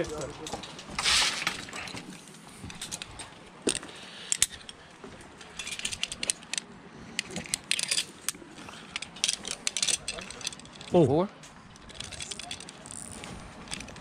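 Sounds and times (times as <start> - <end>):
metal harness hardware clicking: 2.6 - 4.8, 5.4 - 11.0, 11.7 - 14.0
metal buckles jangling: 5.4 - 6.6, 7.2 - 11.0, 11.7 - 14.0.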